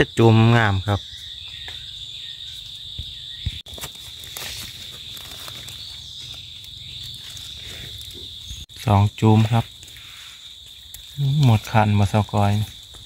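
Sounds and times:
insects droning: 0.0 - 13.0
footsteps knocking on forest floor: 1.4 - 1.9, 2.6 - 6.4.

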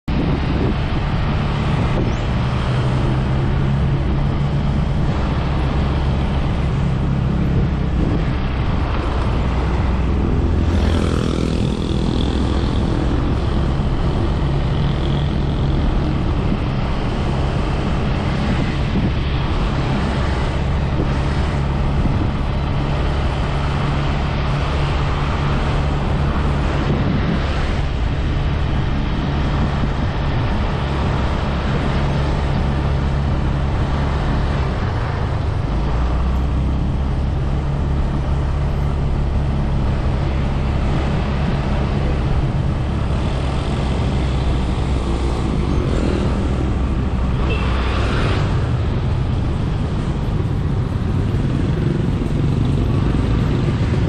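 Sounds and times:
wind and road noise: 0.0 - 54.0
motorcycle engine running: 3.0 - 20.0, 36.3 - 54.0.

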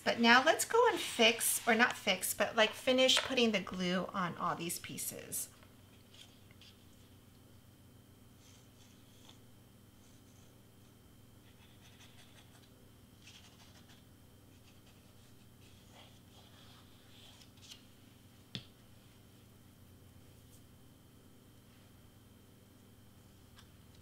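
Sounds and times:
low steady hum: 0.0 - 24.0
scratching and rustling on cardstock: 11.4 - 17.9.

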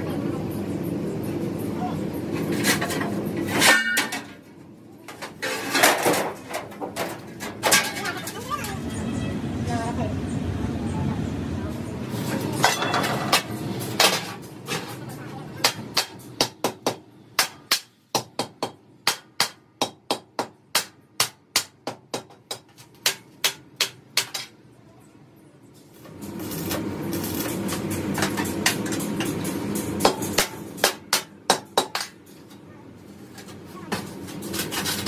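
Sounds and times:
hammer striking steel tank: 2.8 - 4.3, 30.0 - 32.2.

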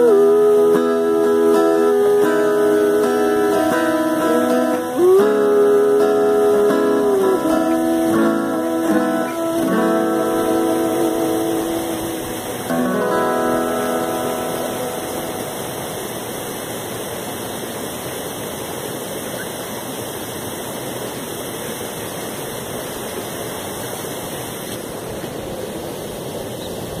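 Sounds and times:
acoustic guitar chord ringing: 0.0 - 17.4
steady rushing noise: 1.6 - 27.0.

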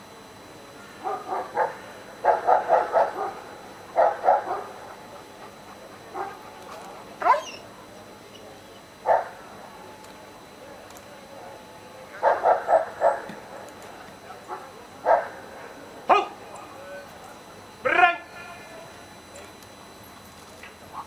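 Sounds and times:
dog barking: 1.0 - 5.0, 6.1 - 6.5, 7.2 - 7.6, 9.0 - 9.4, 12.2 - 13.4, 14.5 - 15.4.

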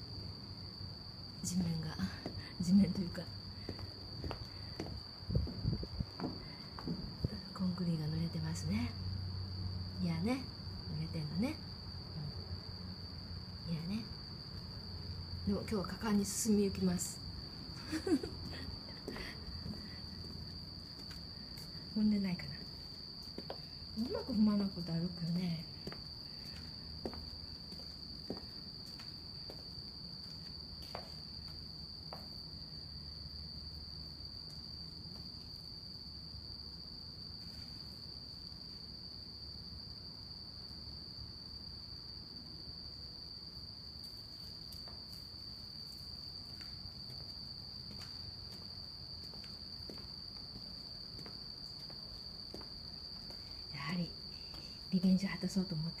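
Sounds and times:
night insects trilling: 0.0 - 56.0
faint low rumble: 1.3 - 27.7.

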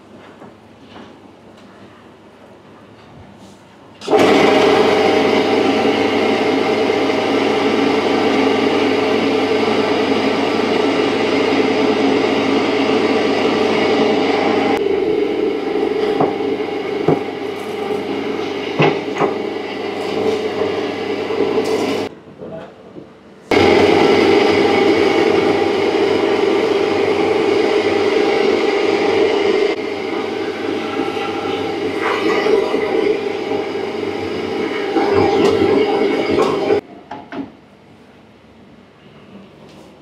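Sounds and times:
electric meat grinder humming: 4.1 - 22.1, 23.5 - 36.8.

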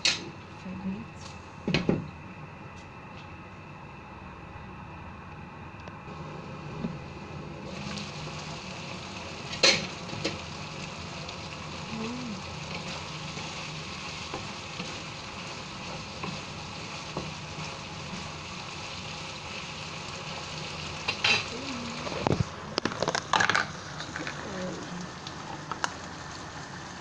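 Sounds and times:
curry sizzling in a pan: 7.6 - 27.0.

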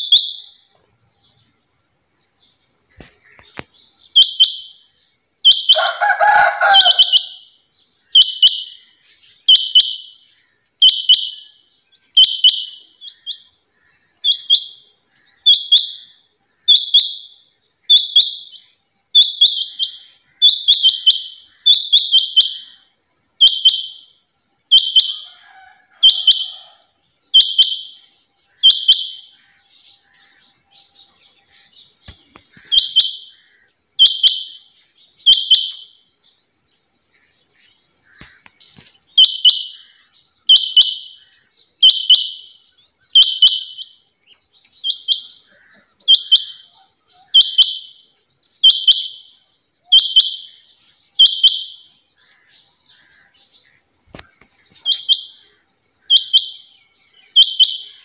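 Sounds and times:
quail short high call: 5.7 - 7.4.

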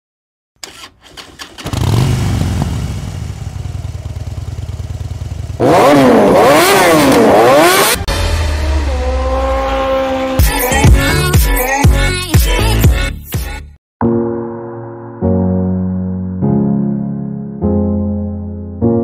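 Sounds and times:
motorcycle engine revving: 1.0 - 10.5.

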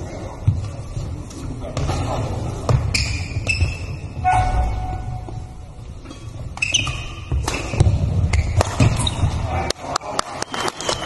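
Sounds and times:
shoes squeaking on floor: 2.7 - 9.4.

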